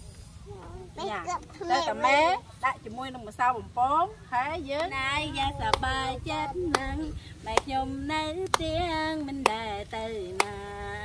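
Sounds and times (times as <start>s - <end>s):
woman singing: 4.3s - 11.0s
hand claps: 6.7s - 6.9s, 8.4s - 9.6s, 10.3s - 10.6s.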